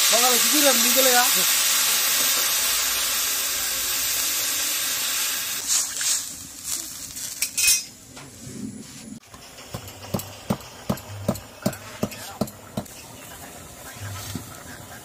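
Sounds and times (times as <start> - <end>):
water hissing on hot pan: 0.0 - 7.5
curry sizzling in a wok: 0.0 - 7.6.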